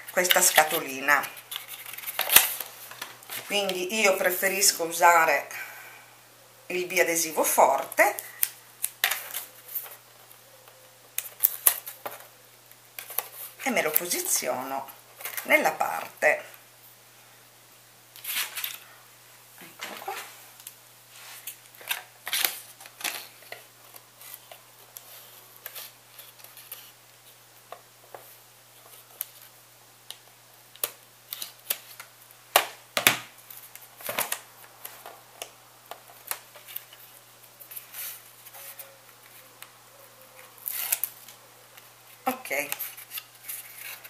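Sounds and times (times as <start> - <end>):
hands handling tape and cardstock: 0.0 - 3.8, 40.4 - 44.0.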